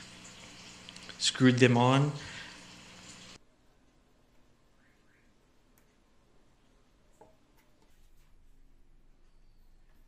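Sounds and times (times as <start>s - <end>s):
low hiss: 0.0s - 7.3s.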